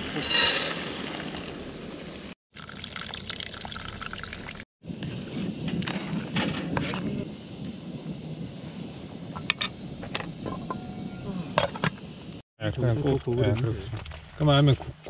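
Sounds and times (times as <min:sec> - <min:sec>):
water trickling into pot: 0:02.5 - 0:04.6.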